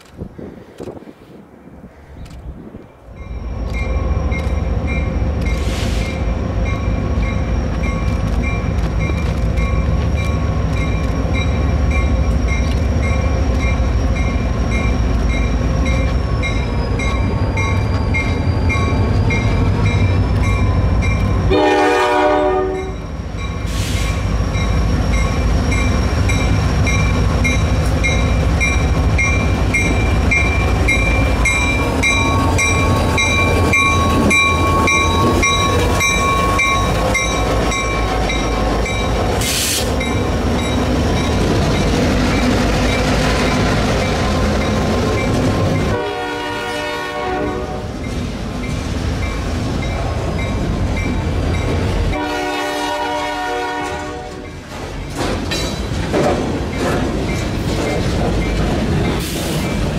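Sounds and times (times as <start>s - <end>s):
diesel locomotive engine rumble: 0.0s - 59.9s
locomotive bell ringing: 3.1s - 23.7s, 24.4s - 39.3s, 40.0s - 46.0s, 48.0s - 52.3s
train horn blast: 21.5s - 23.0s, 45.9s - 48.0s, 52.1s - 54.5s.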